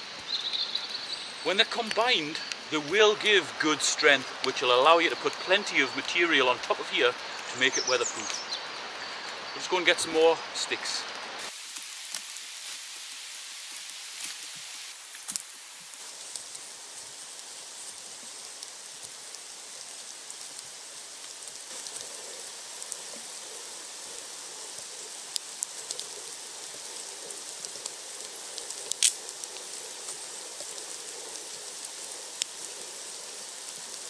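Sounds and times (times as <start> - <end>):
steady rain in woodland: 0.0 - 34.0
sharp clicks and ticks: 28.6 - 31.5.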